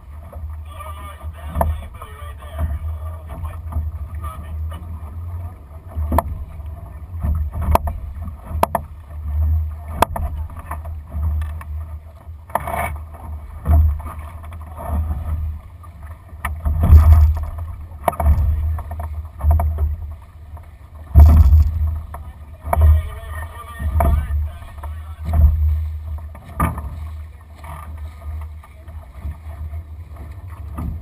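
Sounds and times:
water splashing along hull: 0:00.0 - 0:31.0
boat fittings knocking and clicking: 0:16.4 - 0:19.9, 0:21.2 - 0:22.9.

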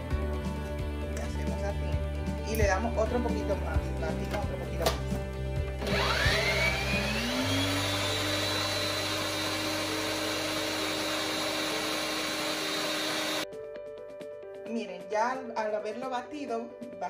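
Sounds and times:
stand mixer motor whine: 0:05.8 - 0:13.4.

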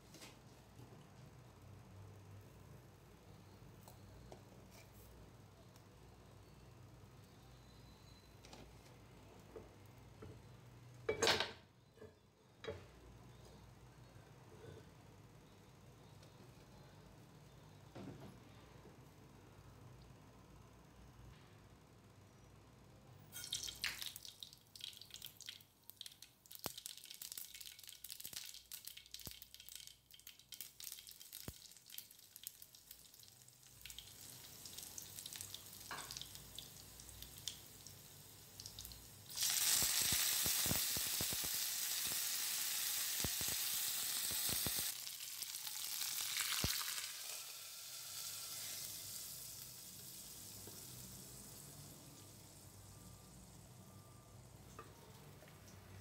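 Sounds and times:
seeds popping in hot oil: 0:23.3 - 0:53.6
loud frying sizzle: 0:23.3 - 0:54.6.

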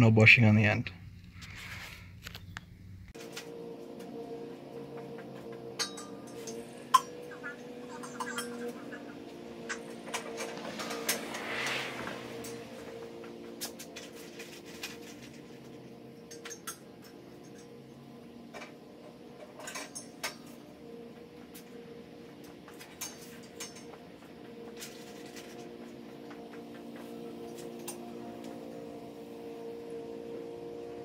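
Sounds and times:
steady low hum: 0:00.0 - 0:31.0
light metal clinks and knocks: 0:04.9 - 0:11.4.

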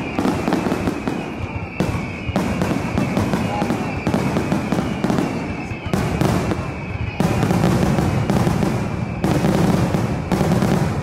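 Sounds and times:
fireworks crackle: 0:00.0 - 0:11.0.

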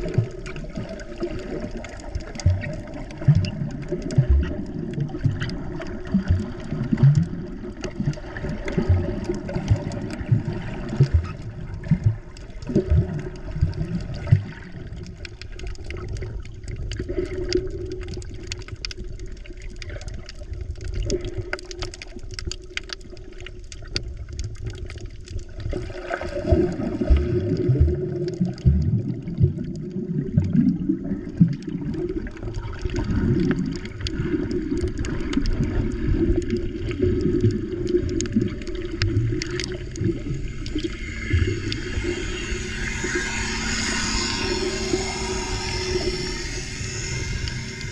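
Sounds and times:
muffled underwater sloshing: 0:00.0 - 0:47.9.

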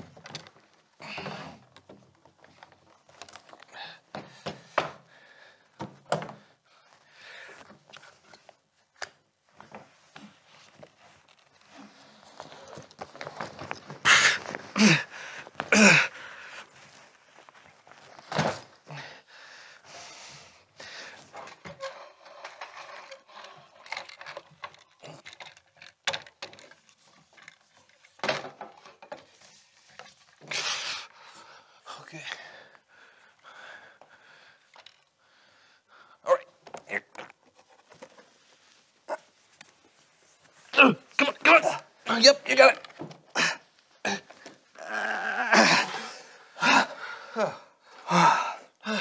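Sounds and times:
rubbing and rustling: 0:07.8 - 0:15.7, 0:16.3 - 0:18.9, 0:21.1 - 0:30.6, 0:37.3 - 0:44.8
wooden knocks and clatters: 0:21.2 - 0:30.5.

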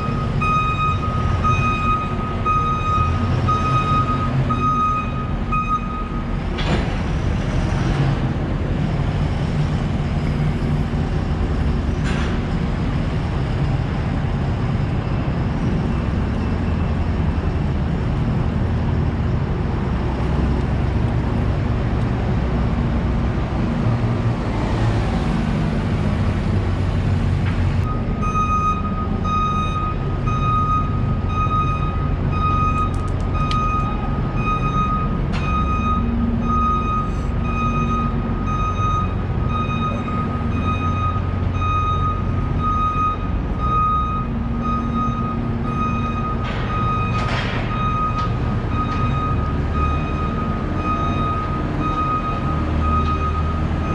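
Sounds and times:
reversing alarm beeping: 0:00.0 - 0:06.4, 0:27.8 - 0:53.9
heavy engine rumble: 0:00.0 - 0:53.9
street noise: 0:00.0 - 0:53.9.

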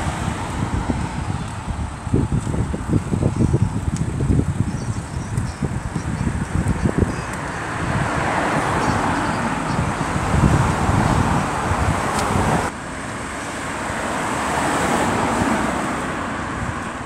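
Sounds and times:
wind on microphone: 0:00.0 - 0:12.7, 0:14.5 - 0:17.0
cars passing: 0:00.0 - 0:17.0.

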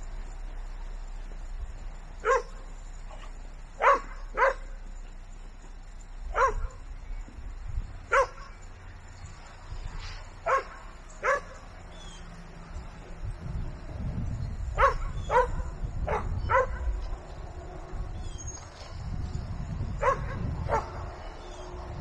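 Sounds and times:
low background rumble: 0:00.0 - 0:22.0
dog barking: 0:02.2 - 0:02.6, 0:03.2 - 0:04.8, 0:06.3 - 0:06.8, 0:08.1 - 0:08.6, 0:10.4 - 0:11.6, 0:14.8 - 0:17.0, 0:20.0 - 0:21.1.

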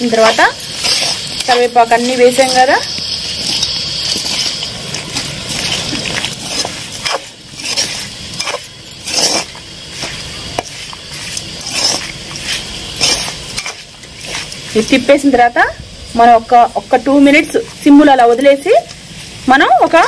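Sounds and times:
metal spatula scraping wok: 0:00.0 - 0:15.0
faint sizzle: 0:00.0 - 0:20.0.

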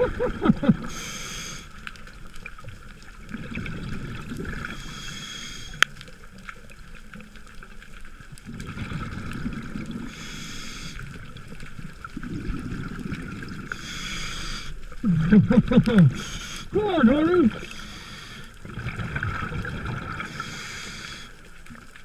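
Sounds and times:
exhaled bubbles rumbling: 0:00.0 - 0:01.0, 0:02.1 - 0:04.8, 0:08.2 - 0:10.2, 0:11.0 - 0:13.9, 0:14.7 - 0:17.7, 0:18.6 - 0:20.5
regulator inhalation hiss: 0:00.8 - 0:01.8, 0:04.7 - 0:05.8, 0:10.1 - 0:11.2, 0:13.7 - 0:14.9, 0:16.1 - 0:16.8, 0:17.6 - 0:18.6, 0:20.2 - 0:21.5.

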